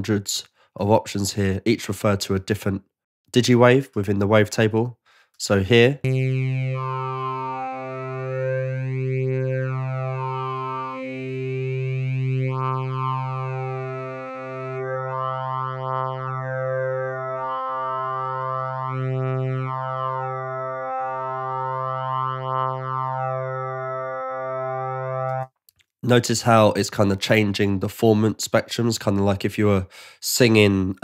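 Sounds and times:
synthesizer note with shifting vowel tone: 6.0 - 25.5.

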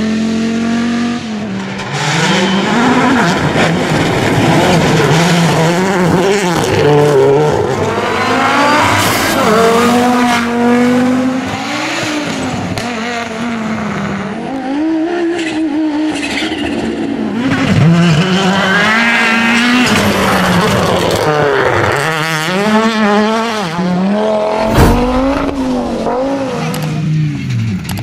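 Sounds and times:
rally car engines at full throttle: 0.0 - 28.0
sharp cracks: 24.6 - 26.4.

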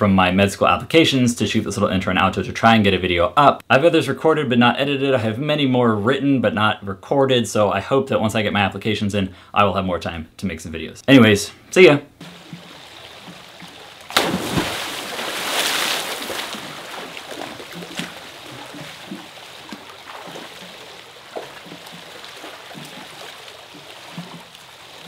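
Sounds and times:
loud splash into pool: 12.2 - 25.0
small splashes: 12.2 - 25.0
water sloshing and lapping: 12.2 - 25.0.

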